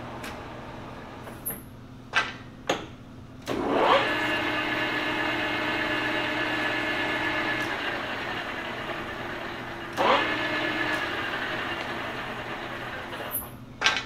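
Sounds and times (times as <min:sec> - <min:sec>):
lathe running with steady whine: 0:03.6 - 0:13.3.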